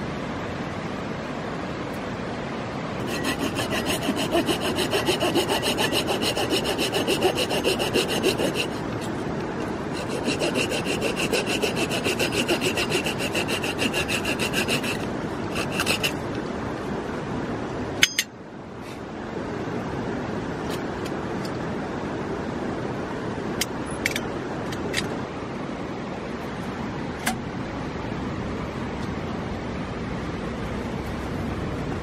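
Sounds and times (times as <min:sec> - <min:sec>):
river rushing: 0:00.0 - 0:23.6
hand saw cutting wood: 0:03.0 - 0:16.3.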